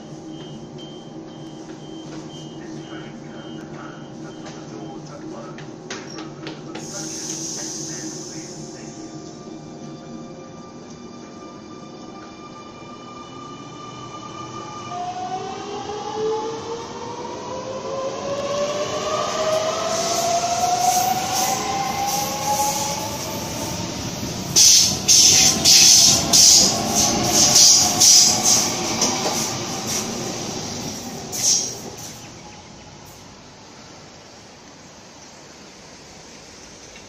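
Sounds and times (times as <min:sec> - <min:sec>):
train wheels clattering on track: 0:00.3 - 0:08.1, 0:24.1 - 0:33.3.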